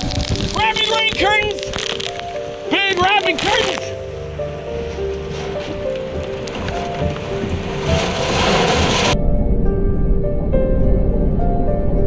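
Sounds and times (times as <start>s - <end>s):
rain: 0.0s - 9.2s
background music with held tones: 0.0s - 12.0s
wind: 0.0s - 12.0s
deep low rumble: 4.0s - 12.0s.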